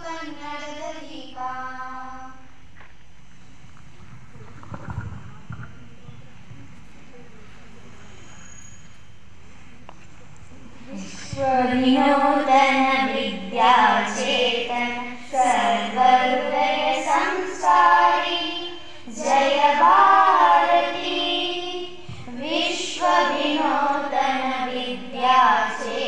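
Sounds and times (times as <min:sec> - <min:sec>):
girls singing prayer song: 0:00.0 - 0:02.6, 0:10.9 - 0:26.0.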